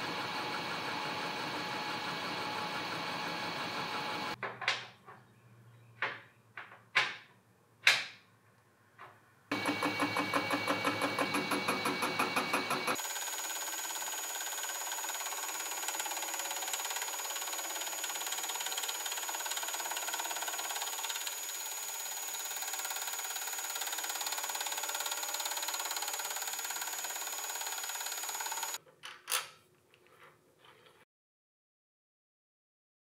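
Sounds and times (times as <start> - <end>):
milling machine running with whine: 0.0 - 4.4, 9.5 - 15.9.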